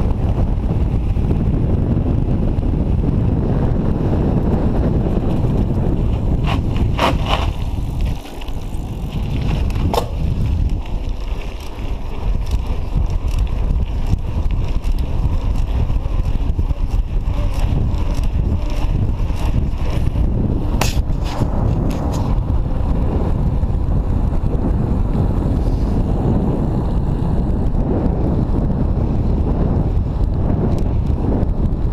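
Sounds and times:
bike clicks and rattles: 0.0s - 31.9s
wind buffeting microphone: 0.0s - 31.9s
tyre rumble on pavement: 3.5s - 25.6s
light bike ticking: 3.8s - 31.9s.

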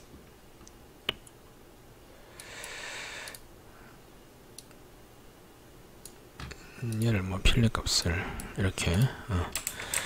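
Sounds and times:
computer mouse click: 2.4s - 3.4s.

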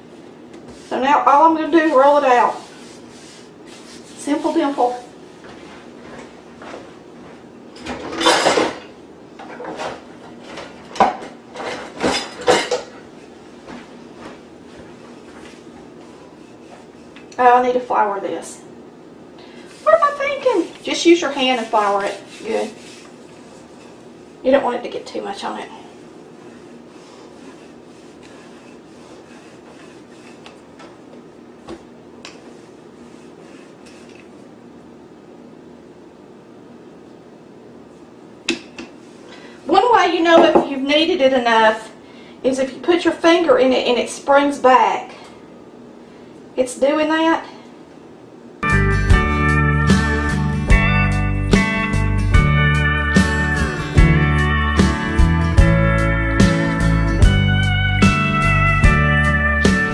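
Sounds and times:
room hum: 0.0s - 59.9s
rolling pin rolling over dough: 0.5s - 6.9s, 13.1s - 18.2s, 19.6s - 34.6s, 38.6s - 40.6s
rolling pin knocking on counter: 40.4s - 40.7s.

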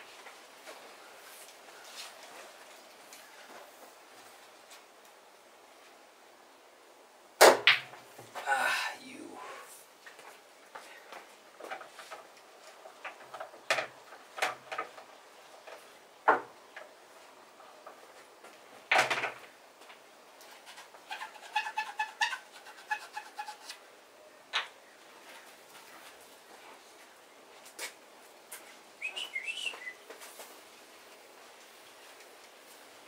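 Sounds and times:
bird chirping: 29.0s - 30.0s.

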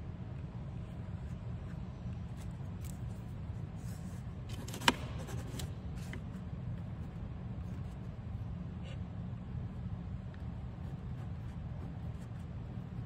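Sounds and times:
steady low hum: 0.0s - 13.0s
pen scratching on paper: 10.4s - 13.0s.

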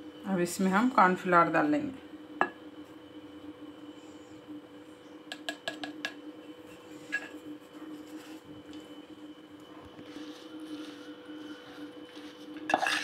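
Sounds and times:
faint steady hum: 0.0s - 13.0s
spoon knocking steel bowl: 5.3s - 6.2s.

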